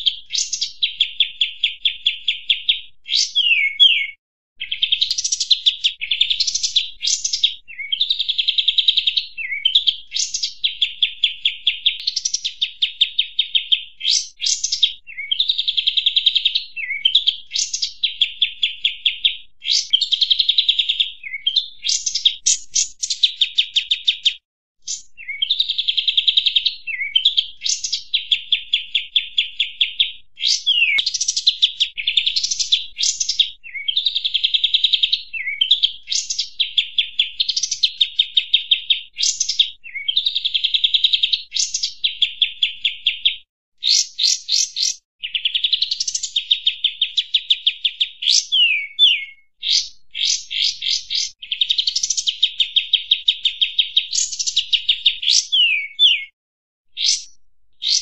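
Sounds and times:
bird chattering calls: 30.4s - 31.3s.

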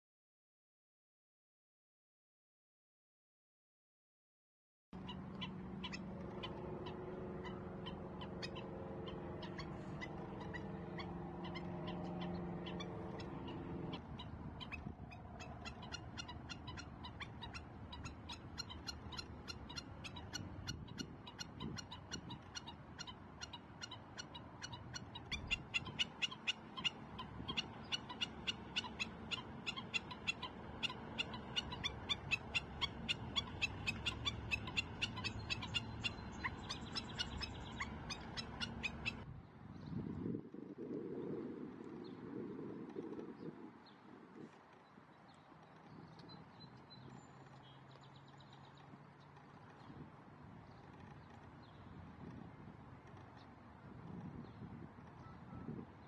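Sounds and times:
birds alarm calling: 5.0s - 39.2s.

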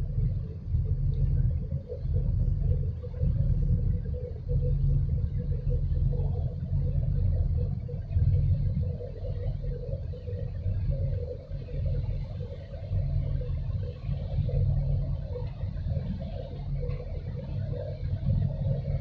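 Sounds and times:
low uneven rumble: 0.0s - 19.0s.

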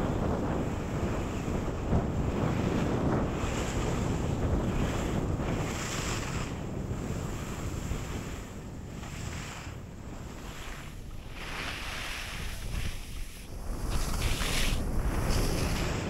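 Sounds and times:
wind on microphone: 0.0s - 16.0s
skis hissing on snow: 10.4s - 16.0s.

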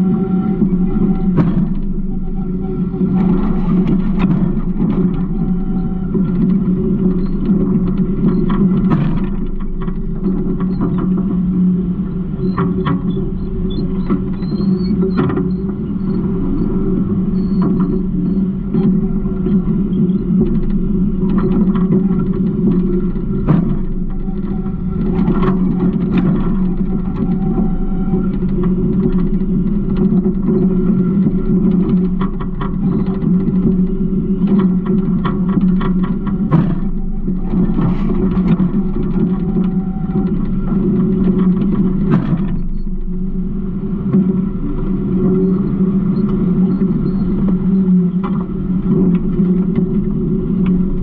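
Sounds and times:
clanks and rattles: 0.0s - 51.0s
garbage truck engine drone: 0.0s - 51.0s.

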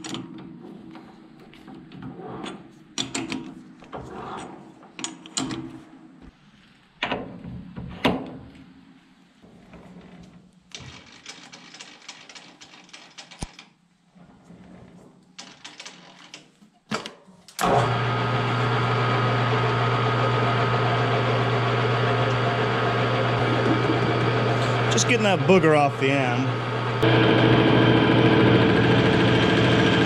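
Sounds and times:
lathe running with low hum: 17.6s - 30.0s.

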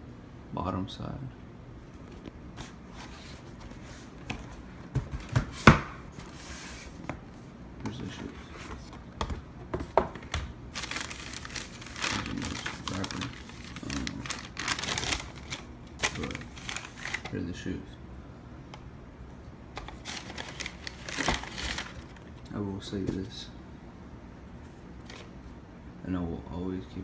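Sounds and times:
tissue paper crinkling: 10.7s - 17.3s, 19.9s - 22.3s.

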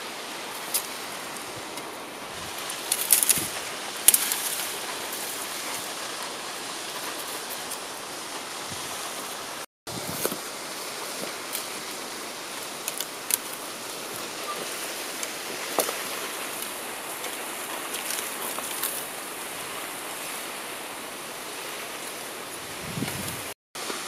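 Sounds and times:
waterfall rushing: 0.0s - 24.0s
dry branches snapping: 2.5s - 5.9s, 12.6s - 13.7s, 15.2s - 19.1s.

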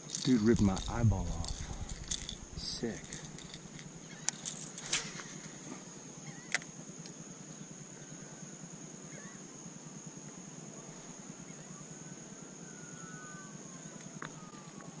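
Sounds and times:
high-pitched whine: 0.3s - 5.2s
low rumble: 0.5s - 4.0s
faint bird calls: 9.1s - 9.5s, 12.6s - 15.0s.

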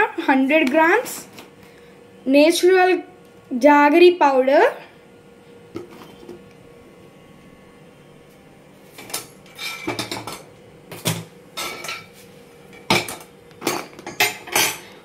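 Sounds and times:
metal cookware clattering: 9.1s - 10.5s, 11.1s - 12.1s, 12.9s - 14.9s.

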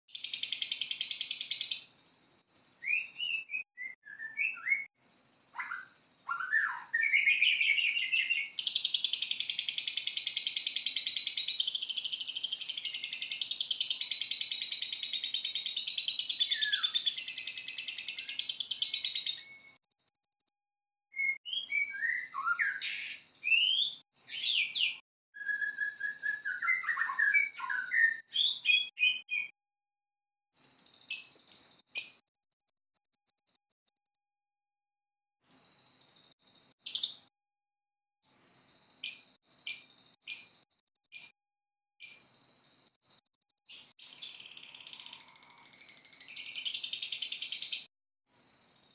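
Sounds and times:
shrill rapid bird chatter: 0.2s - 19.8s, 21.6s - 29.5s, 42.0s - 48.9s
bird whistled phrases: 2.8s - 4.9s, 5.5s - 10.2s, 16.2s - 19.8s, 21.1s - 29.6s.

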